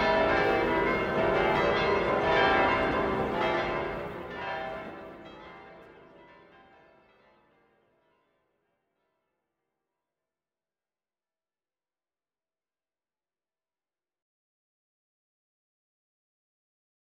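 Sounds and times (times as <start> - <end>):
peal of bells ringing: 0.0 - 7.6.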